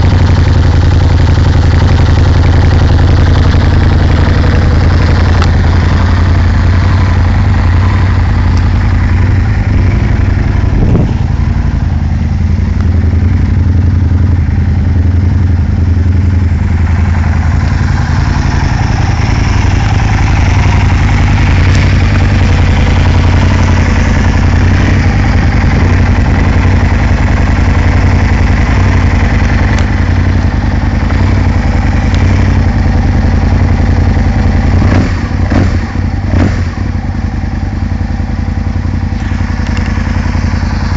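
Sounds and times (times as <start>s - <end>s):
motorcycle engine idling: 0.0s - 40.9s.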